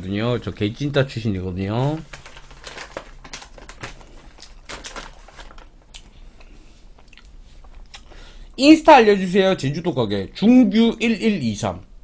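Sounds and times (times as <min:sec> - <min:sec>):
faint steady hum: 0:00.0 - 0:12.0
paper napkin crinkling: 0:01.6 - 0:05.9
chewing pizza: 0:05.9 - 0:08.1.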